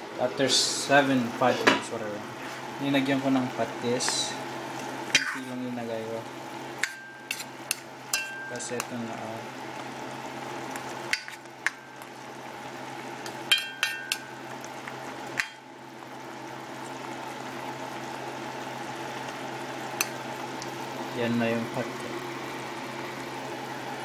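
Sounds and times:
chicken bubbling and sizzling: 2.2s - 24.0s
spoon knocking metal pot: 13.5s - 14.2s.

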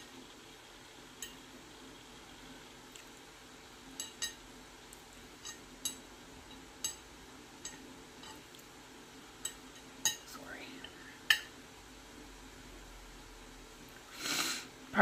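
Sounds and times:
metal fork clinking: 1.2s - 1.4s, 4.0s - 4.4s, 5.4s - 8.5s, 9.4s - 10.3s.

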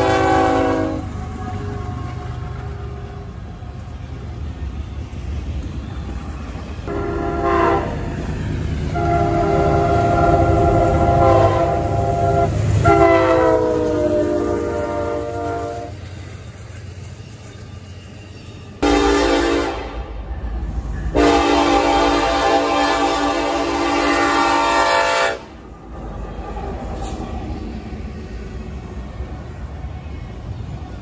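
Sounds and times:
locomotive air horn: 0.0s - 3.2s, 6.9s - 8.1s, 8.9s - 16.0s, 18.8s - 20.1s, 21.1s - 25.6s
passing train rumble: 0.0s - 31.0s.

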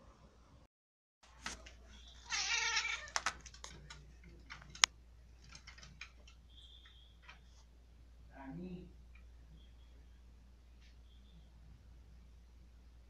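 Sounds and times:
cat meowing: 2.1s - 3.3s
sharp clicks and knocks: 3.1s - 7.4s.

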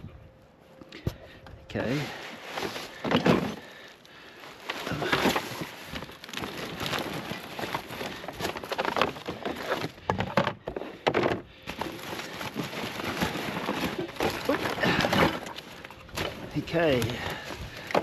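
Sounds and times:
rustling of cardboard and bags: 0.0s - 18.0s.

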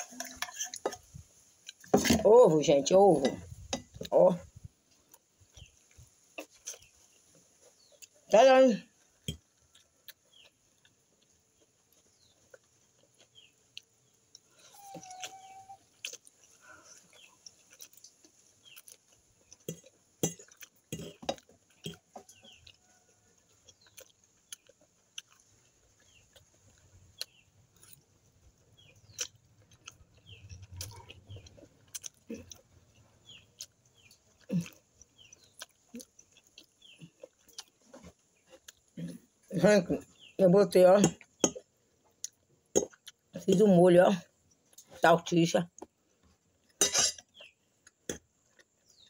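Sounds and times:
person eating spaghetti: 0.0s - 2.3s, 3.2s - 8.3s, 8.9s - 39.5s.

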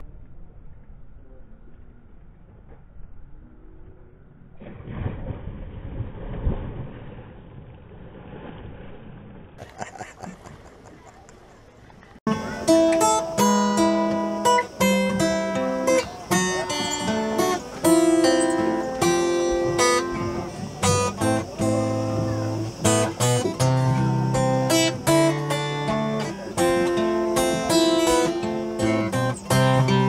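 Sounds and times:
acoustic guitars strumming: 12.3s - 30.0s.

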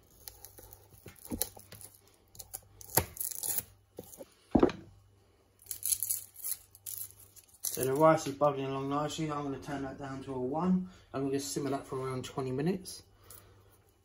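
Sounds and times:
dry skin tearing and rustling: 0.0s - 4.2s.

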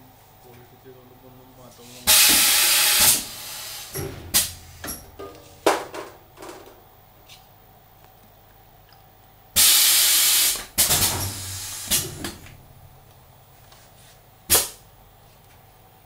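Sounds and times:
compressed air hissing: 1.8s - 5.6s, 9.6s - 12.6s
low steady machine hum: 3.2s - 9.6s, 11.0s - 14.4s.

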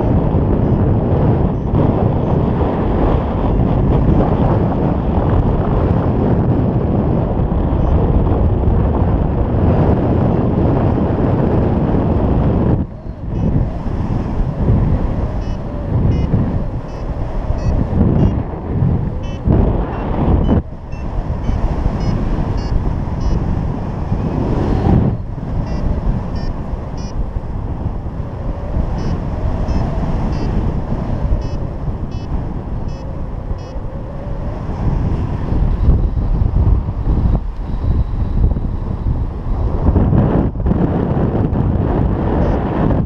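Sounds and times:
wind buffeting microphone: 0.0s - 43.0s
variometer beeping short tones: 15.4s - 18.4s, 19.2s - 23.4s, 25.6s - 27.2s, 29.0s - 30.6s, 31.4s - 32.3s, 32.9s - 33.8s, 42.4s - 42.6s.

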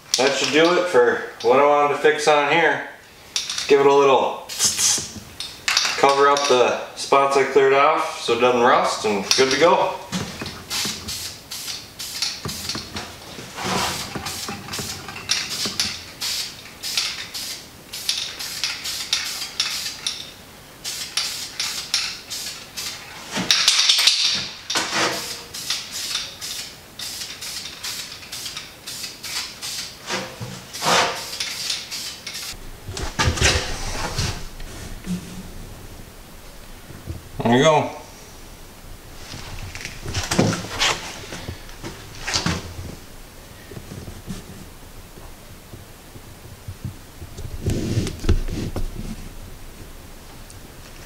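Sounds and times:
spray paint hissing: 4.5s - 5.2s, 10.6s - 12.9s, 13.6s - 20.2s, 20.8s - 23.0s, 24.7s - 32.6s
spray can ball rattling: 10.5s - 13.0s, 13.9s - 33.4s.

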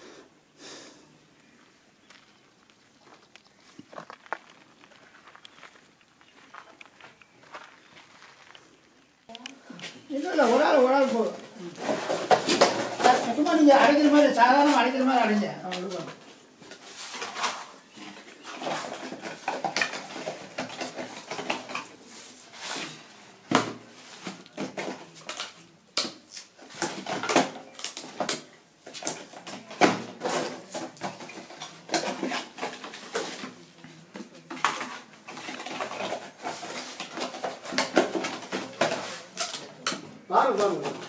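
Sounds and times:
fireworks clattering in cardboard box: 11.8s - 13.8s, 34.4s - 39.9s.

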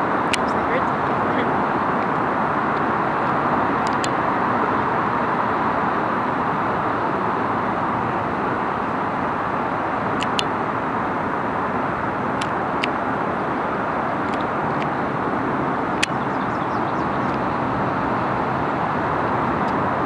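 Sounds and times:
low rumble of distant traffic: 0.0s - 20.0s
high chirps and ticks: 10.2s - 10.5s, 15.9s - 17.4s.

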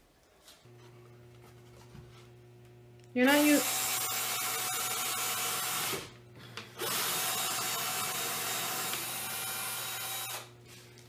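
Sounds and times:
cordless drill driving screws: 3.4s - 6.1s, 6.8s - 10.6s.

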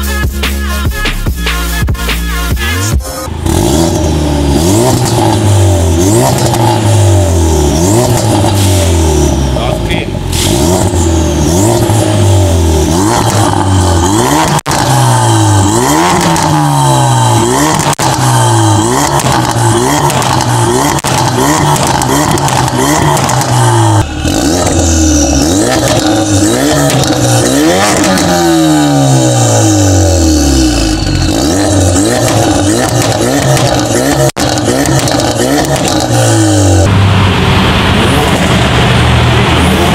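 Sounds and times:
car engine revving: 2.1s - 39.9s.

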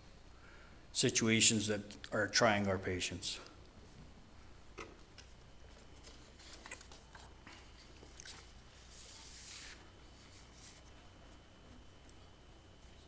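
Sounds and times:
low room hum: 0.0s - 13.0s
paper rustle: 5.7s - 11.0s.

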